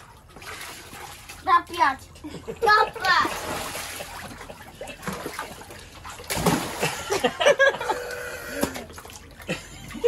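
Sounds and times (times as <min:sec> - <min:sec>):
water splashing in paddling pool: 0:00.0 - 0:10.0.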